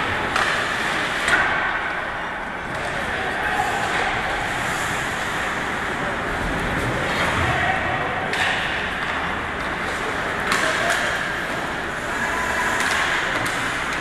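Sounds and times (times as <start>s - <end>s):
hockey sticks and puck clacking: 0.0s - 14.0s
skate blades scraping ice: 9.7s - 14.0s.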